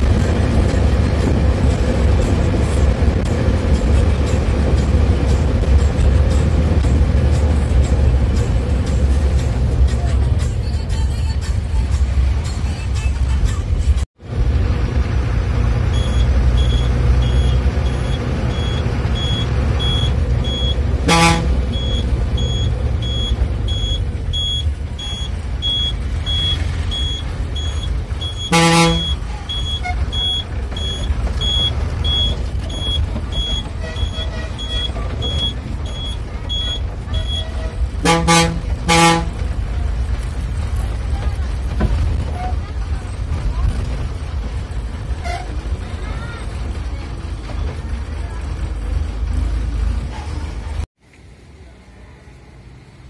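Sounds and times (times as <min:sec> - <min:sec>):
bus engine and road rumble: 0:00.0 - 0:53.0
bus horn blasts: 0:16.0 - 0:23.4, 0:28.2 - 0:31.0, 0:32.8 - 0:39.6, 0:45.1 - 0:45.6.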